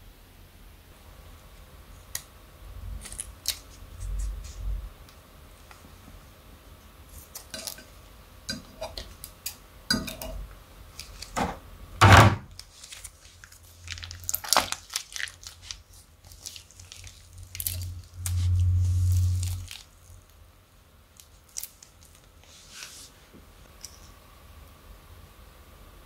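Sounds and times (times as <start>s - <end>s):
plastic crinkling: 12.5s - 20.4s, 21.1s - 23.1s
slime crackling and squelching: 12.5s - 20.4s.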